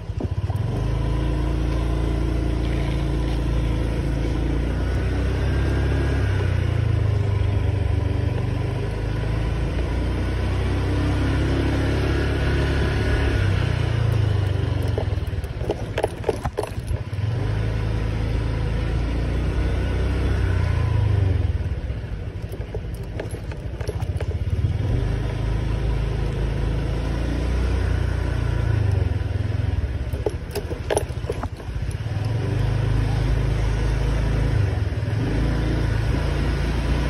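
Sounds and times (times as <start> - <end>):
scooter engine and wind rumble: 0.0 - 37.0
light rattling clicks: 13.9 - 17.2, 22.2 - 25.0, 30.0 - 32.6.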